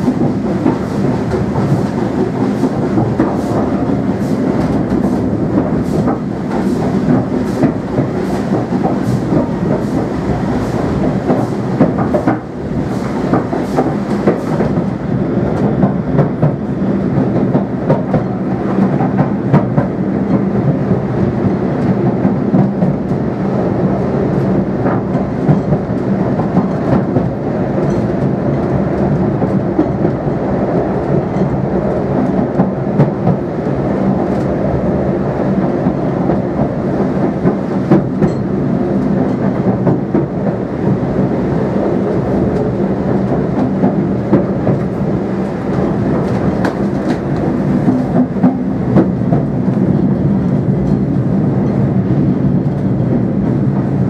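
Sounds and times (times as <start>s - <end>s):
train rumble and hum: 0.0s - 54.0s.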